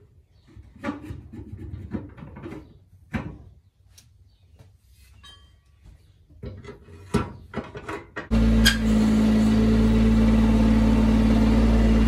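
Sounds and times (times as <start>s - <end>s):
metal clanks and knocks: 5.2s - 8.9s.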